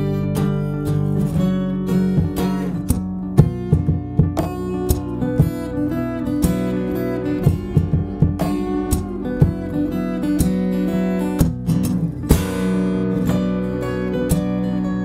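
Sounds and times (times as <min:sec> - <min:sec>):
fingerstyle acoustic guitar: 0:00.0 - 0:15.0
percussive knocks on guitar: 0:02.0 - 0:13.4.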